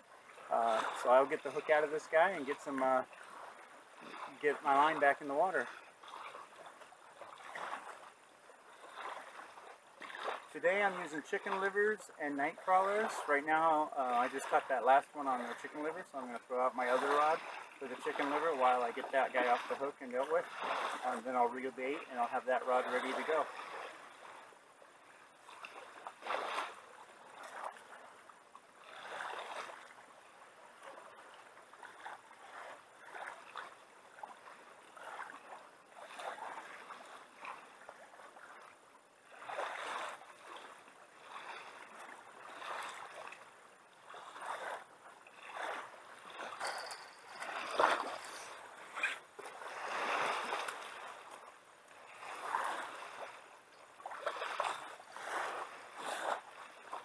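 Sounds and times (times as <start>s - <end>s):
small waves lapping on shore: 0.0s - 57.0s.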